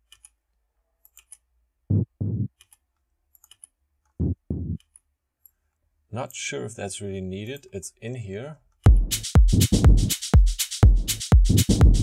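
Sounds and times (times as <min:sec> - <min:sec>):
electronic tom drum hits: 0:01.9 - 0:02.5, 0:04.2 - 0:04.8, 0:08.9 - 0:09.6.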